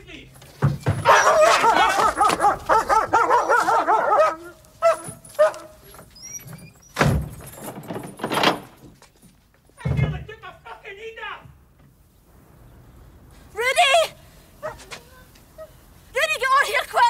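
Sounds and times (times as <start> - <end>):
heavy thumps: 0.4 - 3.4
dog barking: 1.0 - 5.8, 14.6 - 15.0.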